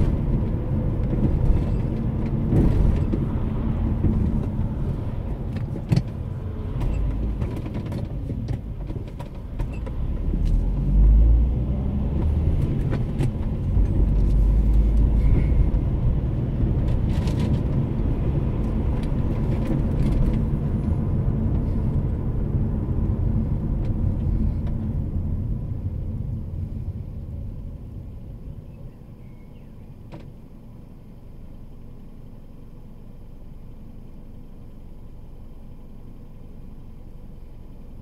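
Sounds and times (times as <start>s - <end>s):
car engine and tyre noise: 0.0s - 38.0s
engine idling quietly: 23.4s - 38.0s.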